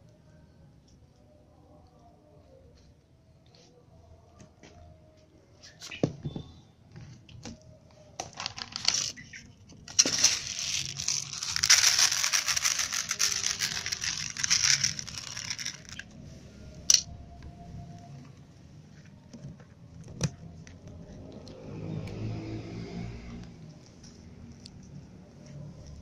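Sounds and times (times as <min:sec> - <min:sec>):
kibble poured onto plastic tray: 0:08.4 - 0:09.2, 0:09.9 - 0:16.0.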